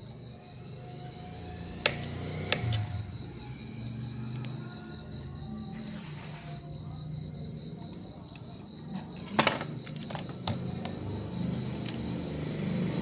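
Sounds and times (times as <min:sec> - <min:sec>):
tools knocking on table: 0:09.2 - 0:10.2.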